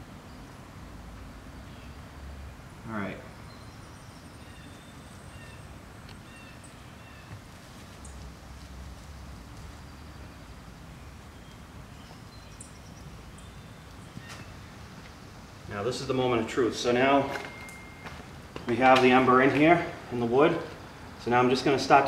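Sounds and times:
outdoor background hiss: 0.0s - 22.0s
bird chirps: 3.3s - 7.4s, 11.0s - 14.6s.

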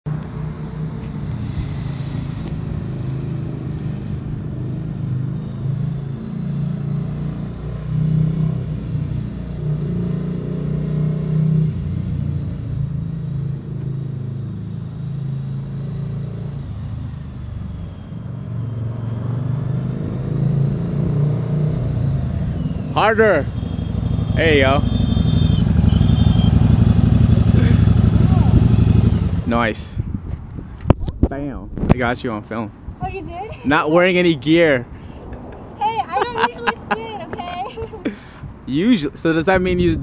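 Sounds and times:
motorcycle engine idling: 22.4s - 29.5s.

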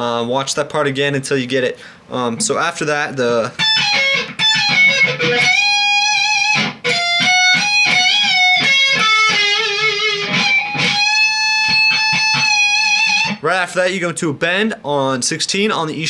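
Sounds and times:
distorted electric guitar solo: 3.5s - 13.4s.

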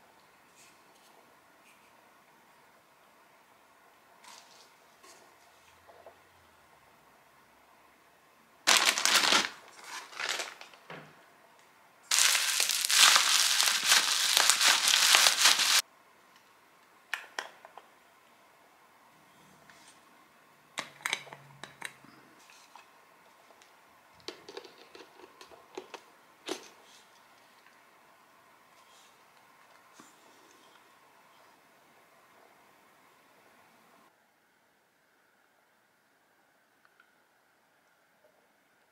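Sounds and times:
plastic packaging crinkling: 8.7s - 10.8s, 12.1s - 15.8s.

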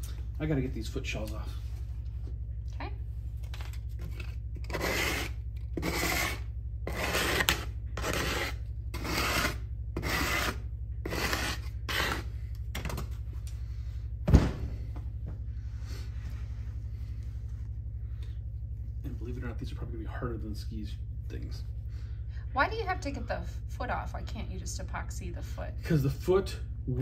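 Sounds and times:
steady low hum: 0.0s - 27.0s
rasping sanding strokes: 4.7s - 12.3s.

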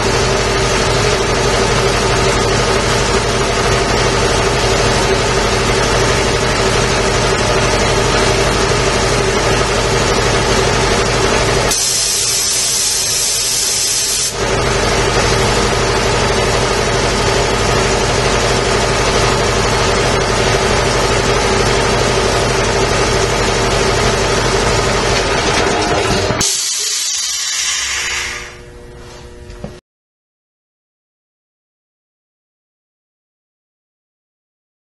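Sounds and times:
air compressor running: 0.0s - 29.8s
loud hiss of air: 11.7s - 14.4s, 26.4s - 28.6s.

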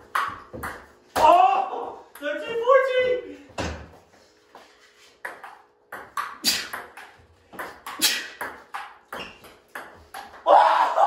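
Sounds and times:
ping-pong ball clicking: 5.2s - 10.4s.

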